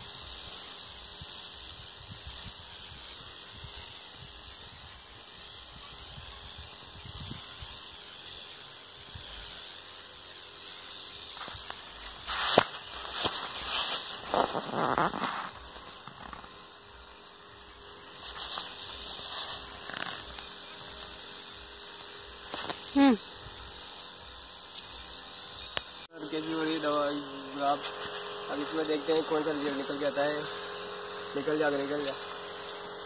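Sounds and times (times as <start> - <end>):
sprayer misting hiss: 0.0 - 33.0.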